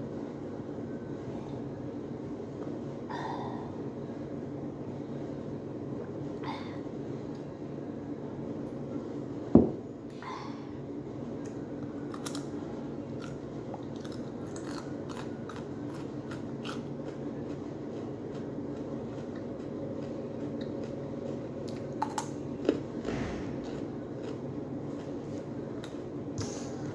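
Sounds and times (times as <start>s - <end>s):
chewing raw carrot: 11.4s - 26.7s.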